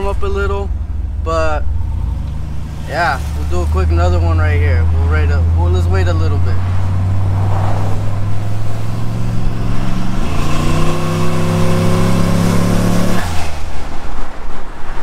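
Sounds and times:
truck engine revving: 0.0s - 13.7s.

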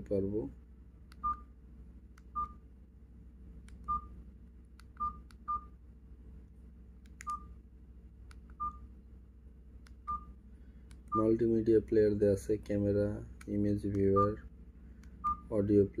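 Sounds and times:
phone key beeps: 14.0s - 14.4s.

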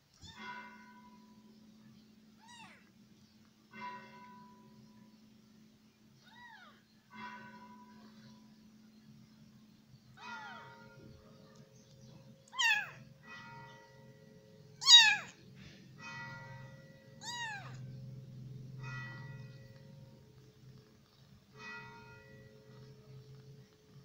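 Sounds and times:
kitten meowing: 12.5s - 13.0s, 14.8s - 15.4s, 17.2s - 17.8s.

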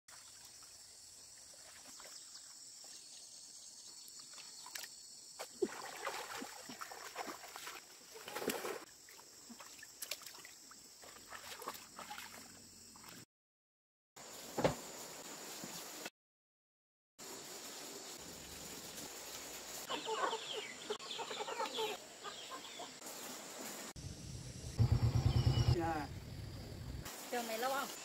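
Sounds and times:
splashing in muddy water: 0.1s - 2.6s, 4.2s - 13.2s
high-pitched hiss: 23.0s - 28.0s.

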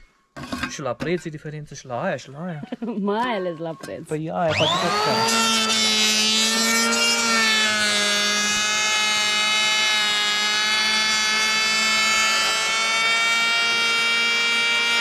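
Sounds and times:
electric hand planer whining: 4.5s - 15.0s.

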